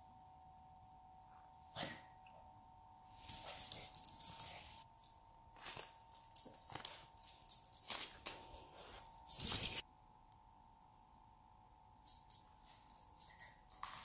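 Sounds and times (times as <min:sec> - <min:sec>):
dog claws pattering on wooden floor: 0:03.3 - 0:09.8, 0:12.0 - 0:14.0.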